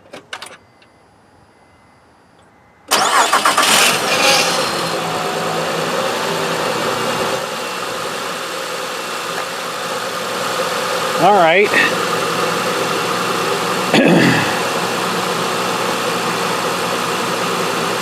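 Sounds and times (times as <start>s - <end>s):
car starter cranking: 2.9s - 5.0s
car engine idling: 2.9s - 18.0s.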